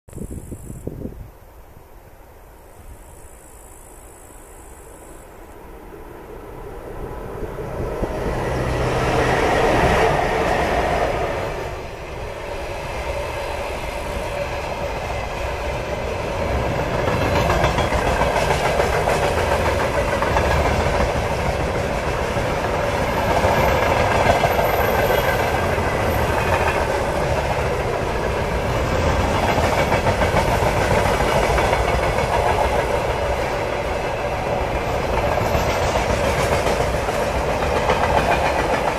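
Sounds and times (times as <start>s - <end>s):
electric locomotive passing: 2.1s - 38.9s
wagon wheels rumbling on rails: 14.9s - 38.9s.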